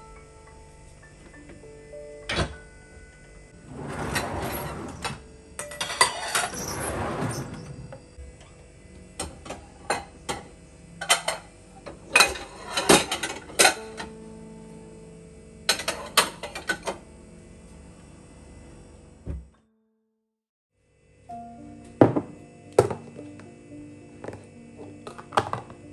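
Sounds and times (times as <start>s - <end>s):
dishes clinking: 3.9s - 7.6s.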